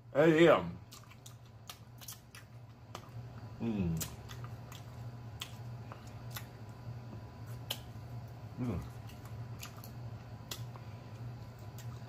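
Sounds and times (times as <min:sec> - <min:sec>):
steady low hum: 0:00.0 - 0:12.0
wet mouth clicks and smacks: 0:00.9 - 0:03.1.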